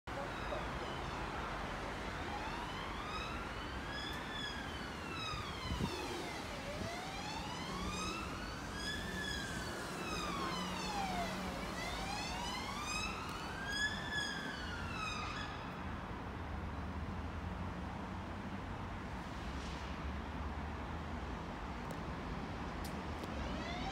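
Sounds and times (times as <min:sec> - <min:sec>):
siren wailing: 0:00.1 - 0:15.7, 0:23.4 - 0:23.9.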